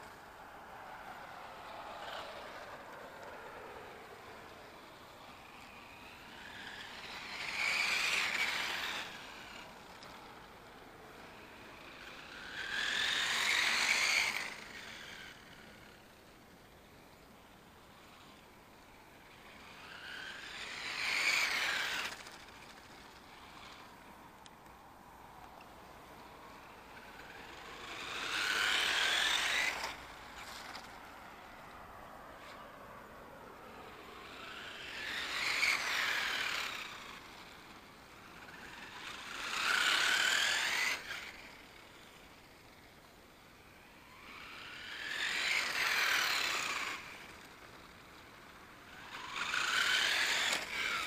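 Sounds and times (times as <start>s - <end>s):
remote control car whine: 0.0s - 51.0s
tyre noise on asphalt: 0.0s - 51.0s.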